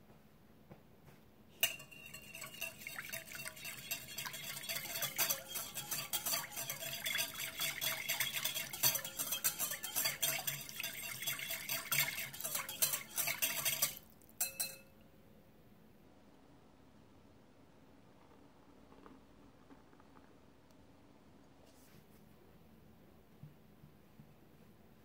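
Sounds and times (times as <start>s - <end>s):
liquid sloshing: 1.6s - 14.2s
whisk clicking against glass bowl: 1.6s - 14.8s.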